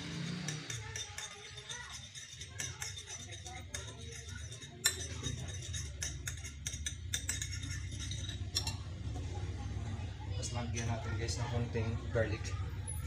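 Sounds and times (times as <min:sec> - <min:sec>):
spoon clinking on ceramic plate: 0:00.2 - 0:08.9.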